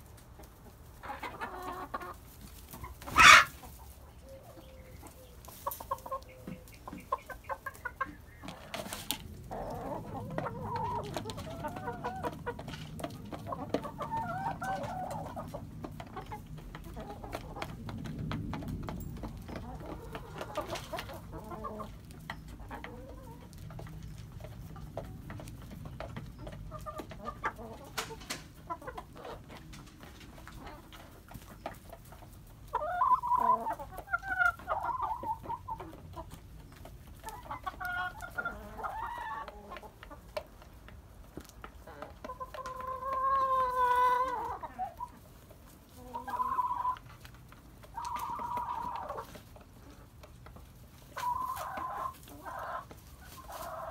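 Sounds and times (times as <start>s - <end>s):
chickens clucking and calling: 0.0s - 53.9s.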